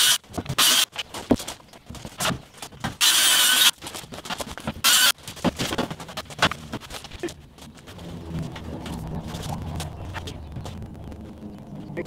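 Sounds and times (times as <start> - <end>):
circular saw cutting plywood: 0.0 - 1.0, 3.0 - 3.8, 4.8 - 5.1
knocks and clatter of plywood: 0.3 - 3.0, 3.8 - 7.2.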